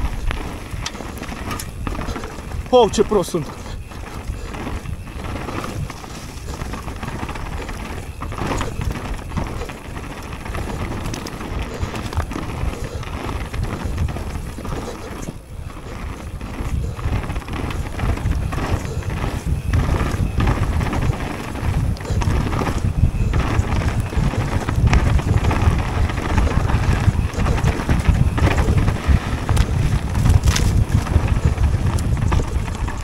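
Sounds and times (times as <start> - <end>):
bike rattling over bumps: 0.0 - 33.0
bike tyres rolling on dirt and leaves: 0.0 - 33.0
wind rumbling on microphone: 0.0 - 33.0.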